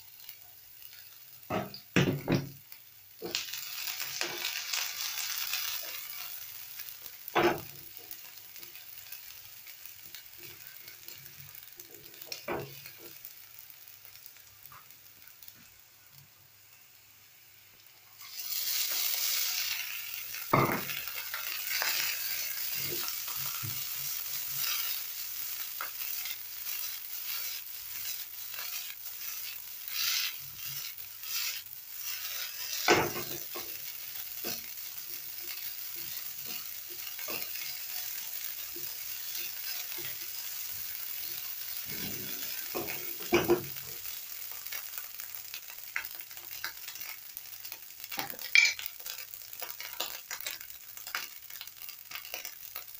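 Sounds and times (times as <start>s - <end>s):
rice sizzling in hot oil: 0.0s - 52.9s
spatula scraping pan: 21.6s - 33.8s, 41.2s - 43.8s.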